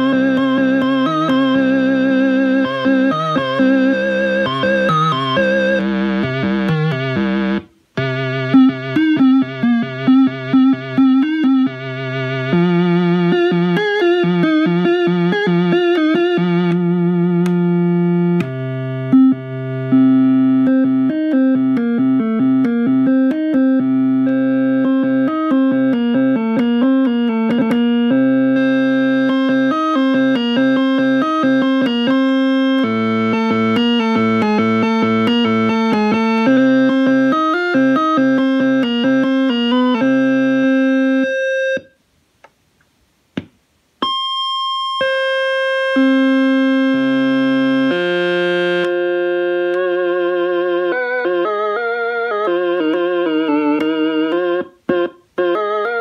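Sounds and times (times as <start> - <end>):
synthesizer notes: 0.0 - 41.9
clicks: 17.4 - 17.7.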